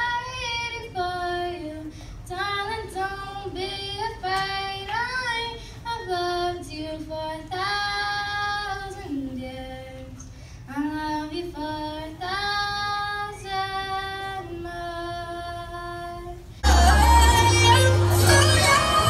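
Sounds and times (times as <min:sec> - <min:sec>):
loud music: 0:16.6 - 0:19.0.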